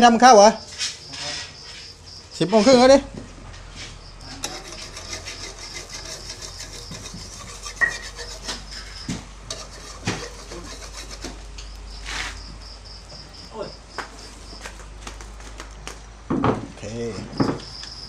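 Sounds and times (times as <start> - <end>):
metal spatula scraping a wok: 3.8 - 12.4.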